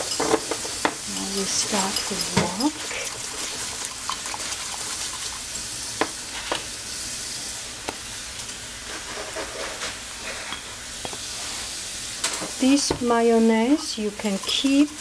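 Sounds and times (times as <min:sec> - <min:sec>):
whisk scraping in a bowl: 0:01.1 - 0:05.6, 0:13.3 - 0:15.0
whisk clicking against bowl: 0:13.6 - 0:15.0.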